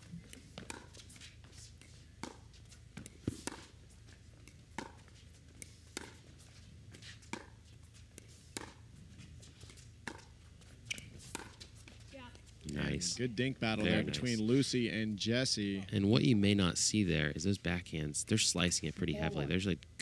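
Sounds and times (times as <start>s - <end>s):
paddles hitting plastic ball: 8.2s - 8.8s.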